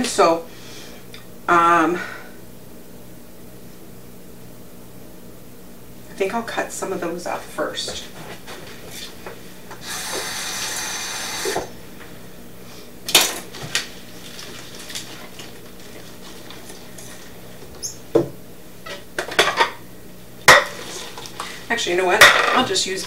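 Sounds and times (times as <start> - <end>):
kitchen tap running: 9.7 - 11.7.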